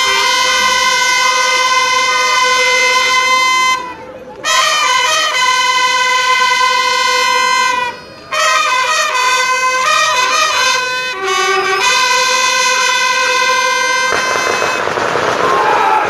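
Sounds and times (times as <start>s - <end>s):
brass horns playing a fanfare: 0.0s - 16.0s
noisy crash: 14.1s - 16.0s.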